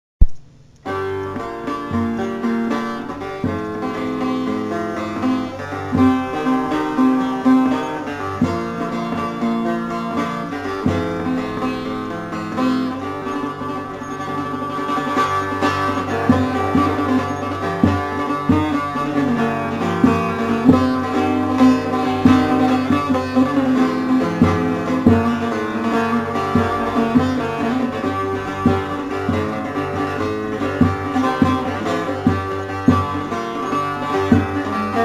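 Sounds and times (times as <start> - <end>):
sharp click: 0.2 - 0.9
plucked string instrument melody: 0.8 - 35.0.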